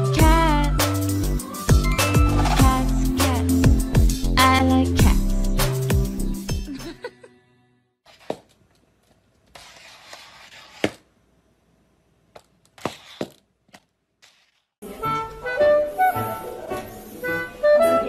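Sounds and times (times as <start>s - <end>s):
music: 0.0s - 8.0s, 14.8s - 18.0s
plastic collar scraping on tiles: 12.8s - 13.4s.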